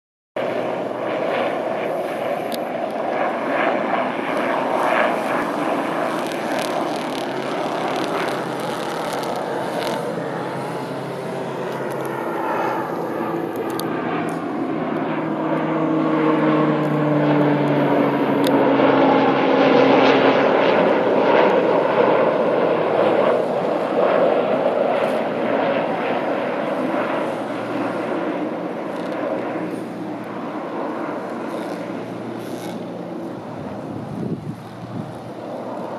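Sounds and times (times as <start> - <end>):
propeller plane flying overhead: 0.4 - 35.9.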